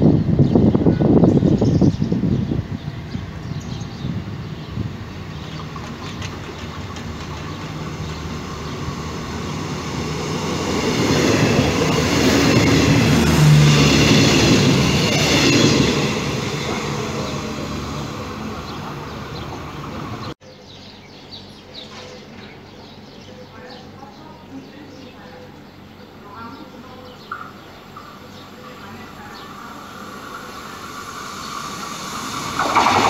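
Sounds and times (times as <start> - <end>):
train wheels rumbling on rails: 0.2 - 20.4, 27.2 - 33.0.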